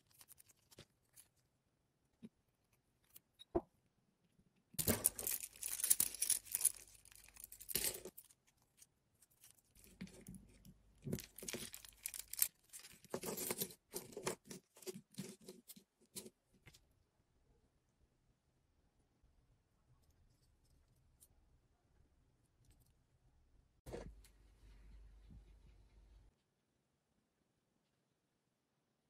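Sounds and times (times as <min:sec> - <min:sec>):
chain links clicking and rattling: 0:04.8 - 0:08.1, 0:11.2 - 0:13.8.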